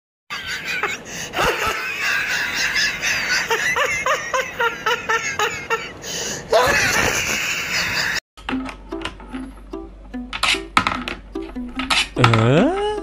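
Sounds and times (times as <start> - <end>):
person laughing in high bursts: 0.3 - 8.2.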